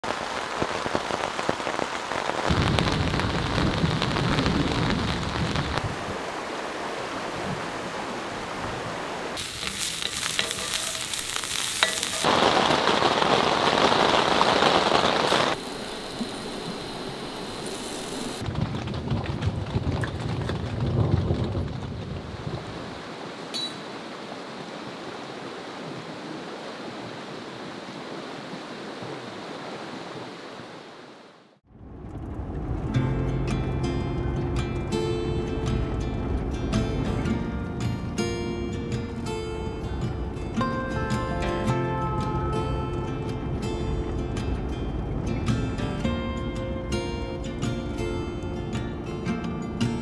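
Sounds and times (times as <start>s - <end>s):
steady rain falling: 0.0s - 49.0s
low rolls of thunder: 2.5s - 6.2s, 18.4s - 23.0s, 31.7s - 34.6s.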